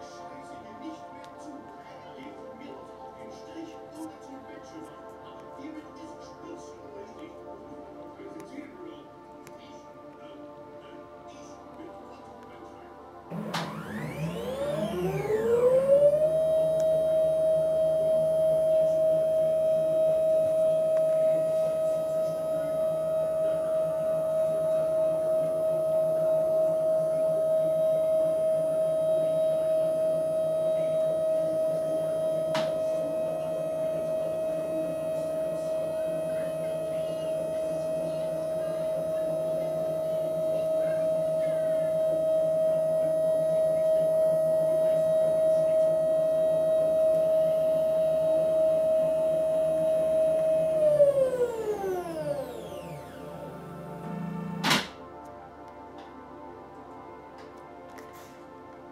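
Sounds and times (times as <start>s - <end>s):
telescope drive motors whining: 13.3s - 54.8s.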